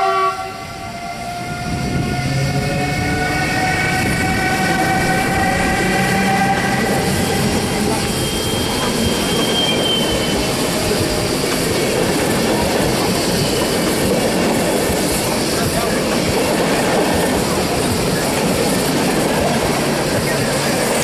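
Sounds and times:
electric locomotive whining: 0.0 - 21.0
wheel squeal: 1.4 - 11.6, 13.1 - 14.0.

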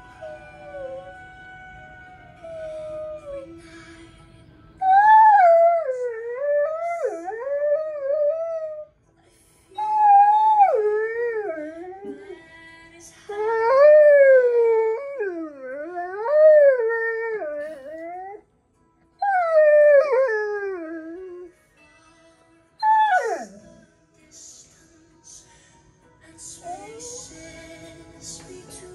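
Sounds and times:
song playing: 0.0 - 5.8
dog howling: 22.8 - 23.8.

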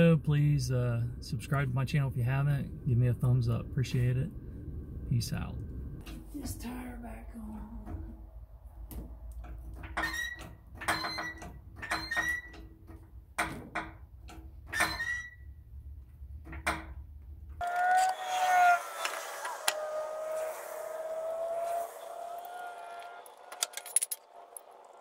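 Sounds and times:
low steady hum: 0.0 - 9.8
wavering squeak with rubbing: 17.6 - 23.8.

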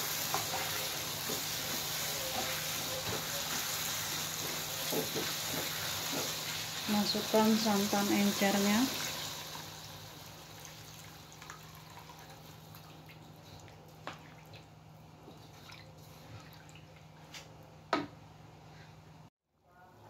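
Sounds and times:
spatula stirring and scraping: 0.0 - 7.7
spice paste sizzling in a wok: 0.0 - 11.2
liquid pouring into a wok: 8.9 - 12.9.

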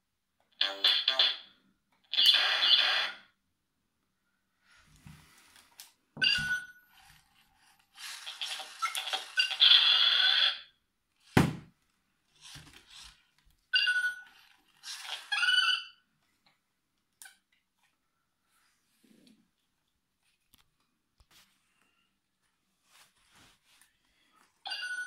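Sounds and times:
toy robot electronic chirps: 8.0 - 10.7.

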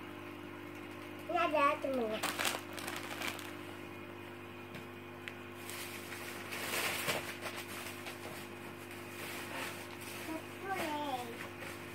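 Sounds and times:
plastic bag rustling: 1.9 - 3.7, 5.6 - 11.9.

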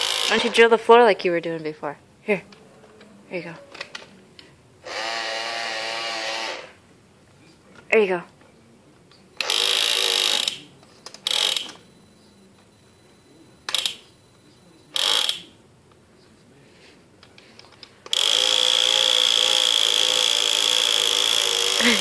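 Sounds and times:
toy hammer drill buzzing: 0.0 - 0.4, 4.8 - 6.8, 9.4 - 10.6, 11.2 - 11.8, 15.0 - 15.4, 18.1 - 22.0.

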